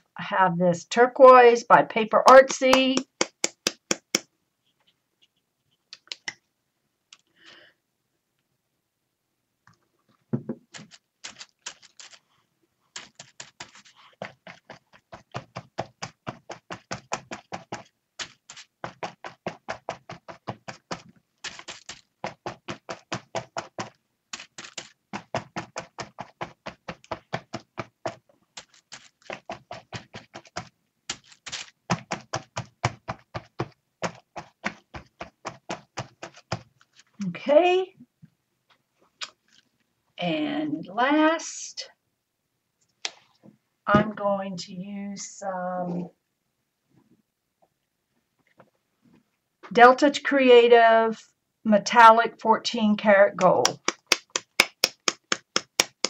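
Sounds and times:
sponge tapping on paper: 2.3s - 4.3s, 29.3s - 36.7s, 53.4s - 56.0s.

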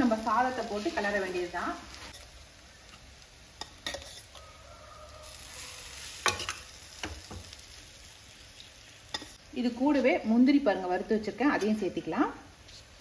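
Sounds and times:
spoon scraping pan: 3.6s - 4.5s, 6.0s - 7.5s.

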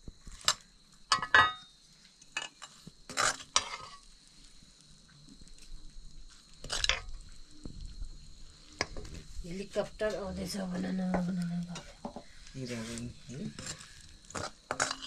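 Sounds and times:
metal utensil scraping a pot: 2.4s - 4.0s, 11.7s - 15.0s.

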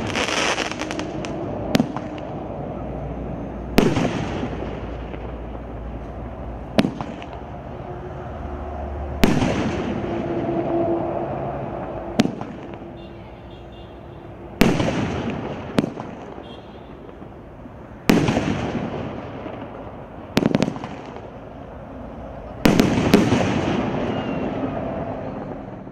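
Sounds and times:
firework launch crack: 0.0s - 3.0s, 3.6s - 7.7s, 9.1s - 10.8s, 11.4s - 13.1s, 14.5s - 21.6s, 22.6s - 25.2s
firework aerial burst echoing: 0.0s - 7.8s, 9.0s - 13.1s, 14.5s - 17.4s, 18.0s - 21.6s, 22.5s - 25.6s.

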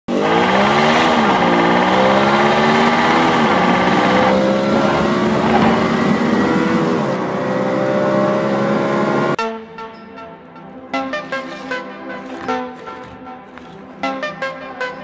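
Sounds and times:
car engine revving: 0.1s - 9.4s.

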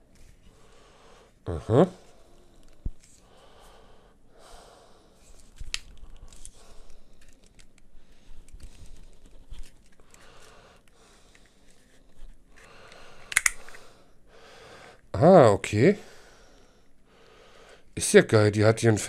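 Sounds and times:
cardboard packaging rustling: 5.2s - 10.5s.

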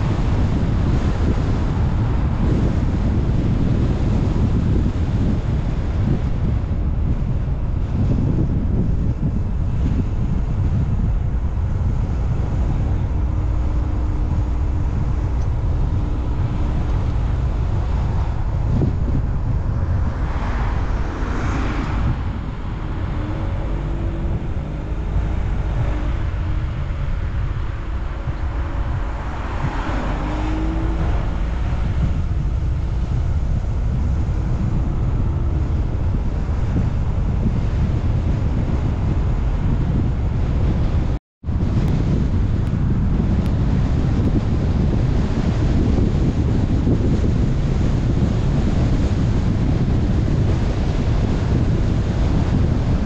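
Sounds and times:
rushing noise: 0.0s - 39.7s
car engine and road rumble: 0.0s - 53.0s
wind buffeting microphone: 0.0s - 53.0s.

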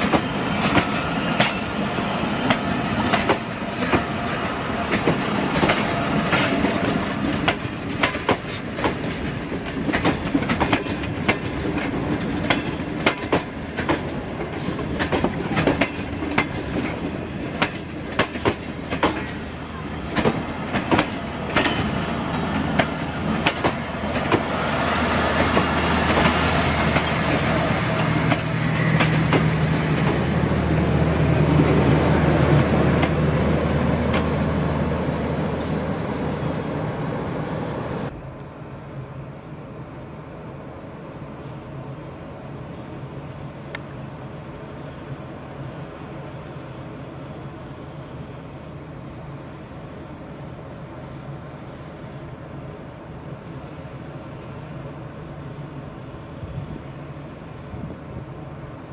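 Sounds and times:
train rumble with low drone: 0.0s - 58.9s
train wheels clacking over rail joints: 2.5s - 4.1s, 4.9s - 19.4s, 20.1s - 22.0s, 22.6s - 24.5s, 25.3s - 35.0s
thin high squeal: 33.3s - 37.5s.

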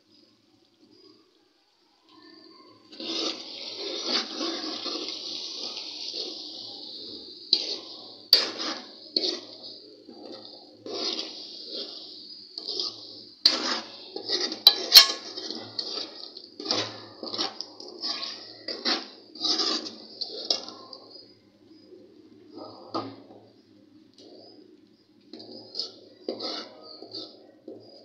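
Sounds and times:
chicken frying in oil: 0.0s - 28.0s
spoon scraping metal pot: 12.6s - 20.7s, 25.3s - 28.0s
spoon clinking against pot: 14.7s - 15.4s.

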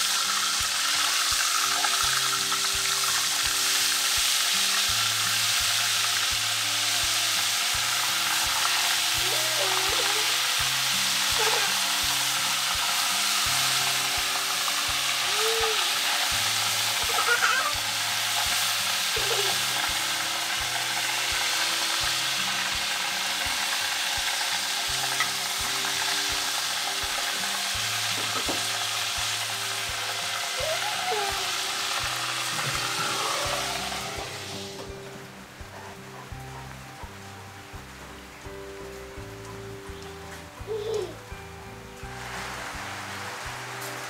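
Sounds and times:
light background music: 0.0s - 44.0s
meat sizzling on a grill: 0.0s - 44.0s.

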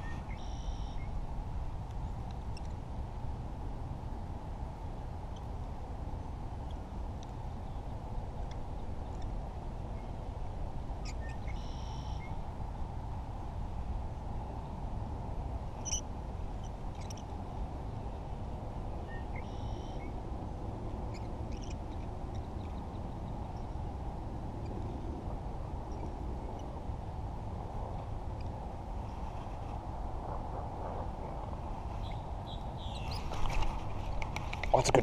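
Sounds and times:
wind noise on microphone: 0.0s - 35.0s
bird calling: 15.8s - 16.0s.

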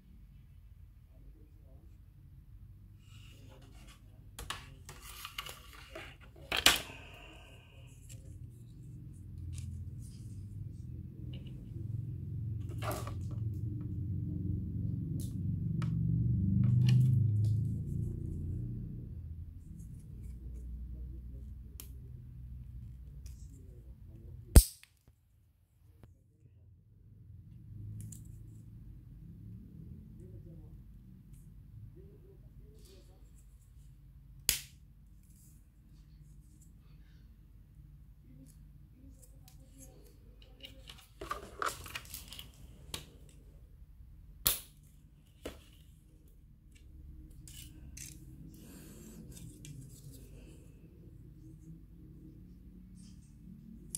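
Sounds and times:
low steady hum: 0.0s - 24.6s, 25.4s - 53.9s
plastic parts clicking and scraping: 3.5s - 7.0s, 39.2s - 43.4s, 47.3s - 48.3s
sharp plastic snap: 24.6s - 25.1s, 34.5s - 34.8s, 44.4s - 44.8s.

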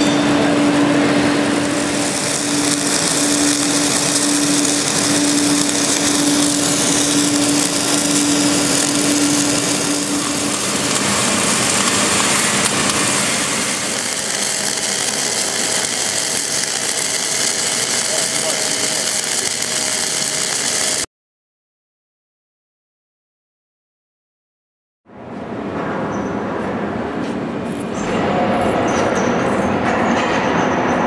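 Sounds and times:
steady hum: 0.0s - 21.1s
welding arc hissing: 0.1s - 21.1s.

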